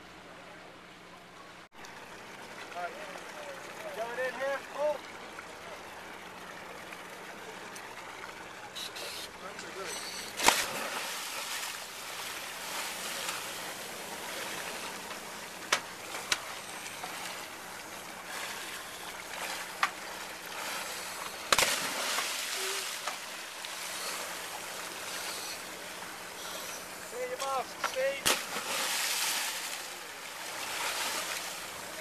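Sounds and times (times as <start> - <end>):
water lapping against hull: 1.9 - 32.0
divers splashing into water: 10.2 - 26.3, 27.8 - 32.0.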